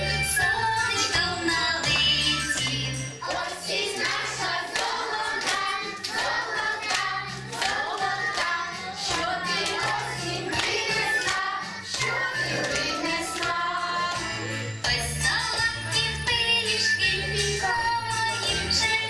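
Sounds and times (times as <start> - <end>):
backing music with bass: 0.0 - 3.1
children singing: 0.0 - 16.2
hand claps: 1.8 - 15.8.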